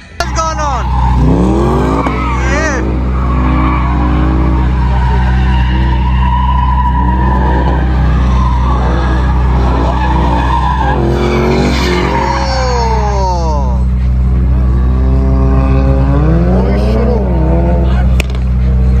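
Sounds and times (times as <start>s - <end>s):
car engine revving: 0.0s - 19.0s
tyres squealing: 0.2s - 14.1s.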